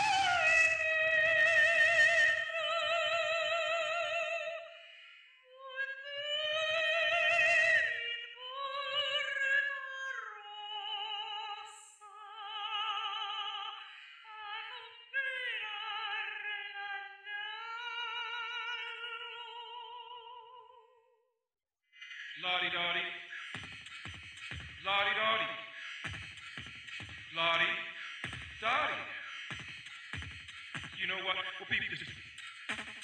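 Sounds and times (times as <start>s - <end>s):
operatic soprano singing: 0.0s - 21.0s.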